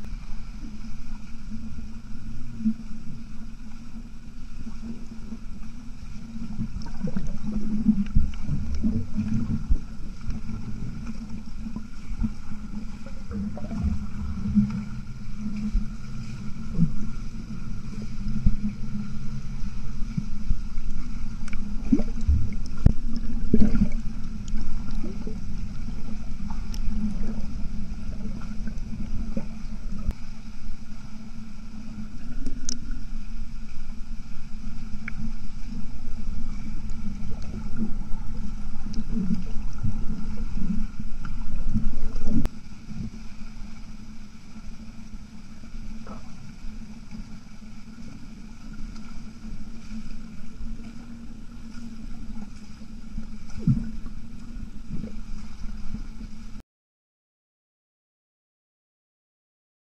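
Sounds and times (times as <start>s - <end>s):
muffled underwater swimming strokes: 0.0s - 56.6s
faint clicks: 20.8s - 25.1s, 32.4s - 33.0s.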